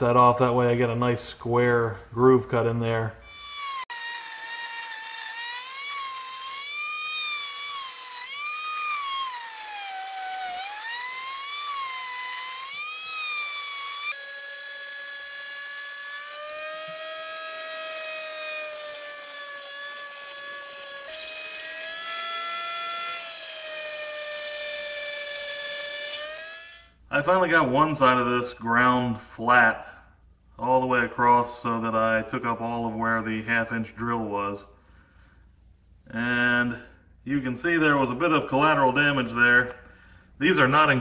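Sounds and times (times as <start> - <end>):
rotary tool grinding steel: 3.2 - 27.0.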